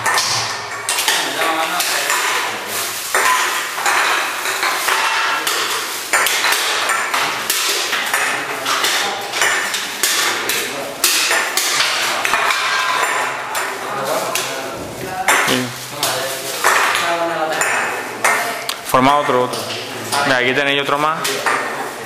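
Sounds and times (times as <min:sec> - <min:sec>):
aluminium cans clinking together: 0:00.0 - 0:14.6.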